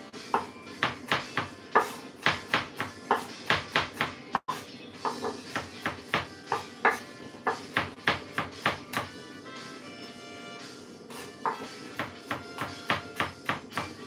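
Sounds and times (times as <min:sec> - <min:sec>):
knife chopping on wooden board: 0:00.3 - 0:04.2, 0:05.0 - 0:09.1, 0:11.1 - 0:14.0.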